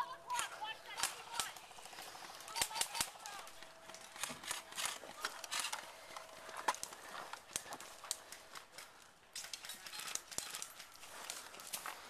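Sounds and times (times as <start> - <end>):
footsteps crunching dry leaves: 1.1 - 9.1, 10.9 - 12.0.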